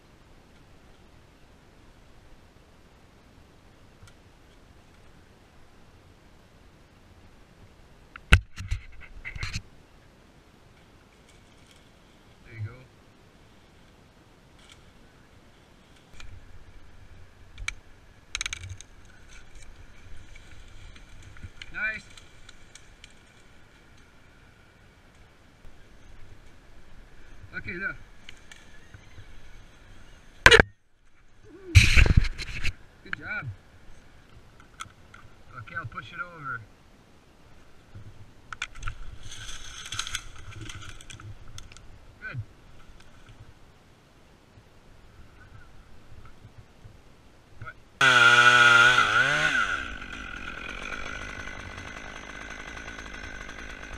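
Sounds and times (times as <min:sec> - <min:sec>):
tree trunk cracking: 0:17.5 - 0:24.1, 0:38.5 - 0:41.8, 0:48.0 - 0:53.9
wood creaking and tearing: 0:18.3 - 0:24.0, 0:38.6 - 0:41.8, 0:48.0 - 0:53.9.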